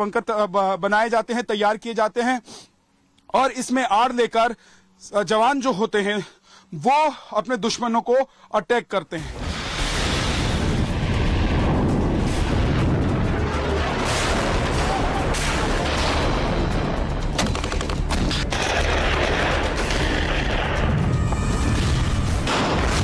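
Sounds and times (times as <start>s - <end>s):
explosion blasts: 9.2s - 17.4s, 18.1s - 23.0s
background music: 9.2s - 23.0s
gunfire shots and bursts: 13.5s - 20.9s, 21.8s - 23.0s.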